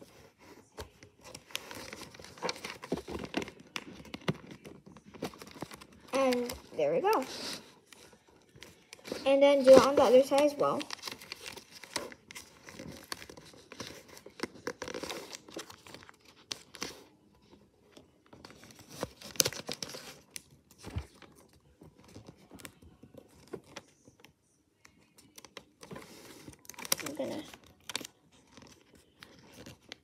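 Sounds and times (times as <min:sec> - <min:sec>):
paper rustling and crinkling: 0:00.0 - 0:30.0.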